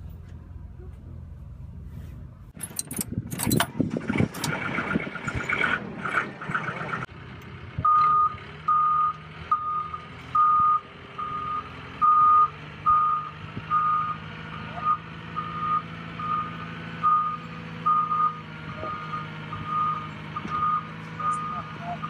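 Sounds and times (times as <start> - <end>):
wheel loader engine running: 0.0 - 22.0
knocks and rattles: 2.6 - 7.0
reversing alarm beeping: 7.8 - 14.2, 14.8 - 22.0.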